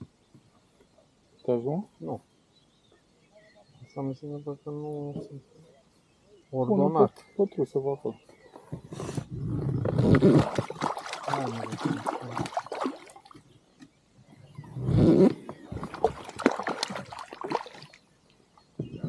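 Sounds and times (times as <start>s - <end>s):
water splashing against boat: 10.0s - 13.6s, 15.5s - 18.0s.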